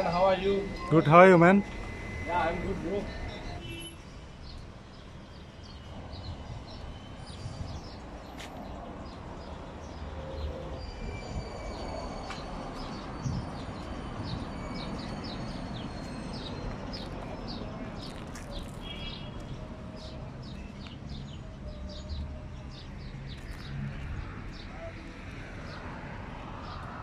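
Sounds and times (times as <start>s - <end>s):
road traffic rumble: 0.0s - 27.0s
small birds chirping: 12.8s - 23.8s.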